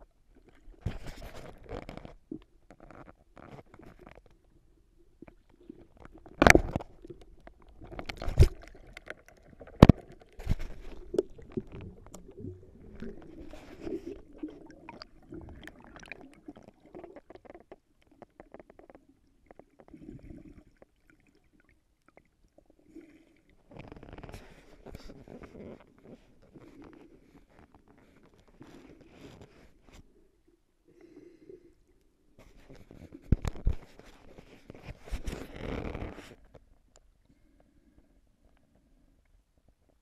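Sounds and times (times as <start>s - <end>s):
underwater gurgling and bubbling: 5.6s - 20.8s.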